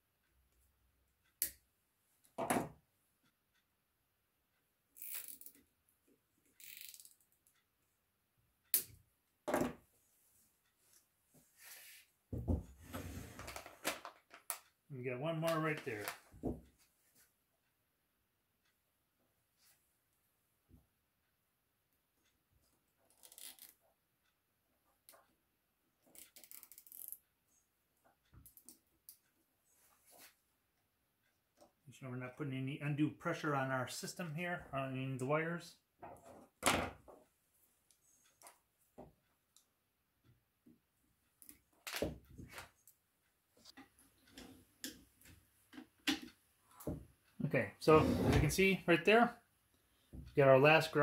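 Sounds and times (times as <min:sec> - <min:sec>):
cables rustling and scraping: 0:43.6 - 0:48.7.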